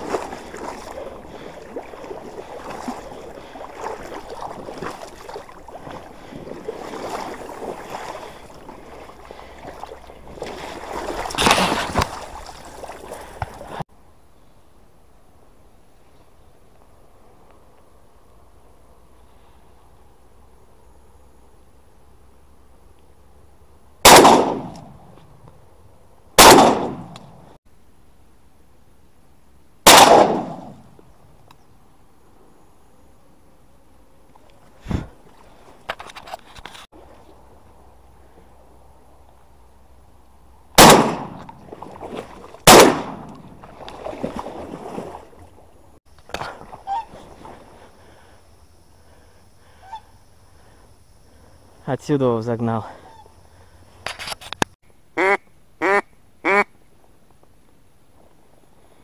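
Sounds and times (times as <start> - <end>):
reeds brushing past: 0.0 - 13.8
water splashing and sloshing: 0.0 - 13.9, 34.3 - 48.4
shotgun shots with echo: 24.0 - 24.9, 26.4 - 27.2, 29.9 - 30.8, 40.8 - 41.4, 42.7 - 43.3.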